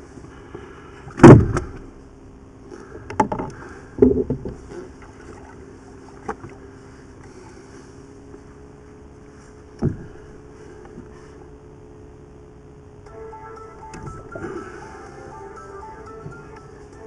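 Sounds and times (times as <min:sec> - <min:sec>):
steady low hum: 0:00.0 - 0:17.0
loud thump: 0:01.2 - 0:01.8.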